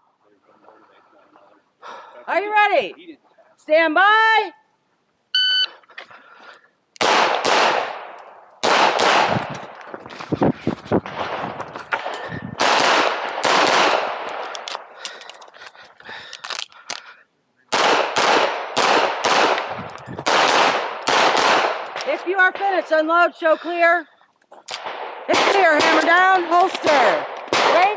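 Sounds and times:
shot timer beep: 5.4s - 5.7s
pistol firing rapid shots: 7.0s - 9.5s, 12.0s - 14.5s, 17.7s - 22.1s, 24.8s - 27.9s.

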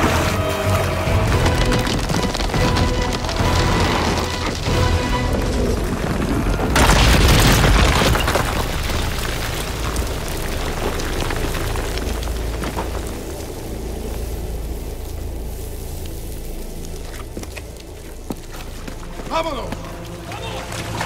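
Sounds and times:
dramatic film score music: 0.0s - 7.8s, 8.6s - 21.0s
boom of rock crashing down: 1.2s - 13.4s.

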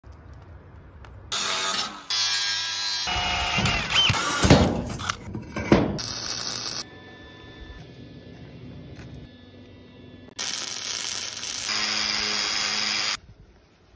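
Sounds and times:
welding crackle: 6.0s - 6.9s, 10.4s - 13.2s
drill boring through steel: 10.4s - 13.2s
power tool on steel: 10.4s - 13.2s.

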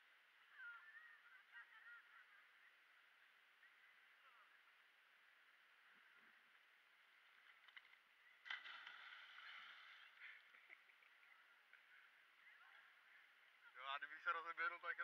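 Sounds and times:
faint splash into pool: 8.4s - 10.9s
churning water: 8.5s - 11.1s.

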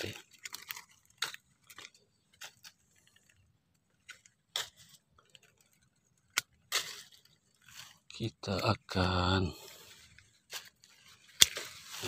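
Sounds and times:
pruning shears snipping: 6.3s - 7.3s, 10.5s - 12.0s.

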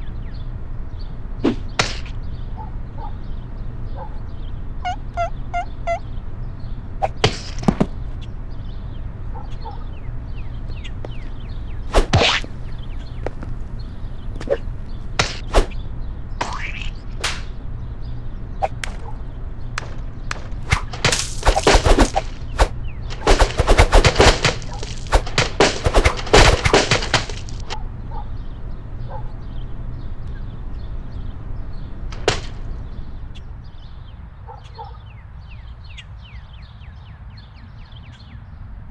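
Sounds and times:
faint bird chirps: 0.0s - 7.2s
steady low hum: 0.0s - 34.1s
clay objects hitting wood: 19.8s - 27.8s, 32.1s - 32.6s.

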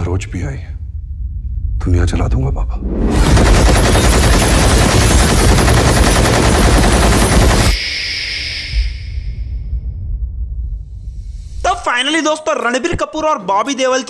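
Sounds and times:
low rumble: 0.0s - 5.8s, 6.4s - 11.7s
rotary machine gun firing: 3.1s - 7.8s.

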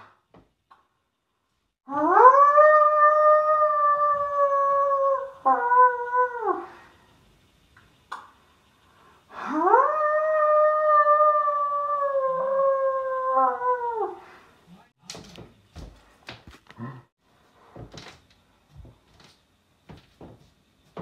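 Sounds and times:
person imitating wolf howl: 1.9s - 6.7s, 9.4s - 14.2s.

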